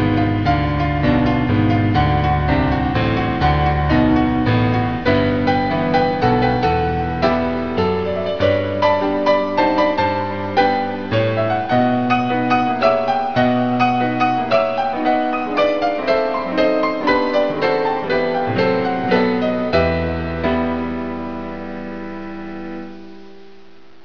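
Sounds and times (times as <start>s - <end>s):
gentle solo piano music: 0.0s - 23.7s.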